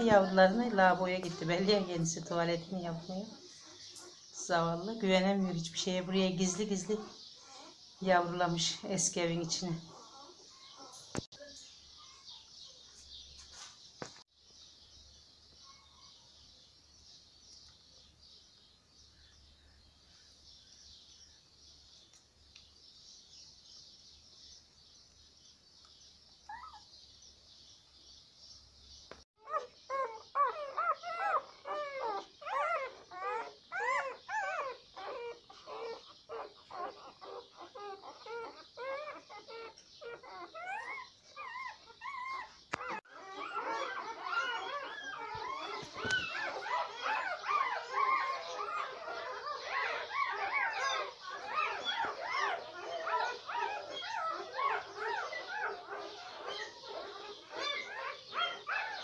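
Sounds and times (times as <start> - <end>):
newborn puppies squeaking and whimpering: 0.0 - 12.8, 15.6 - 16.3, 26.4 - 26.9, 29.4 - 59.0.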